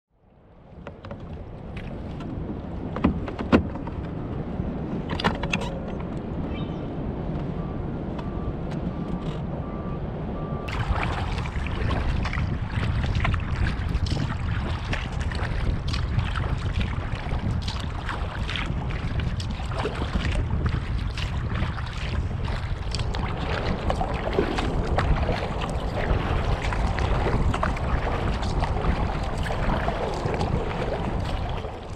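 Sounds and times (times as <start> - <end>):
wind on microphone: 0.4 - 31.9
paddle splashing in water: 0.6 - 4.3, 10.6 - 31.9.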